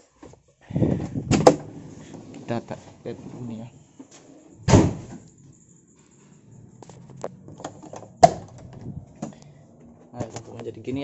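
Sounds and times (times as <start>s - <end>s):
loud thump: 4.6s - 5.2s.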